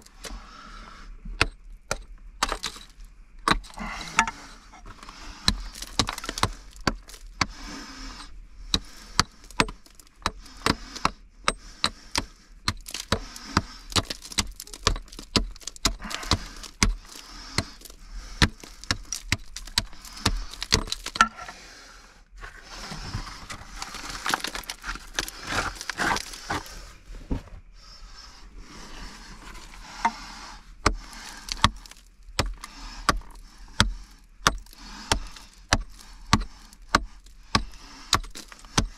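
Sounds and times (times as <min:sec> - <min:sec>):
scraping and rustling: 0:22.3 - 0:34.0.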